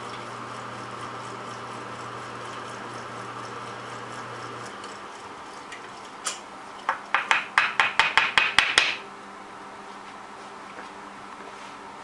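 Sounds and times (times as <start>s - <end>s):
drill press humming: 0.0s - 5.8s.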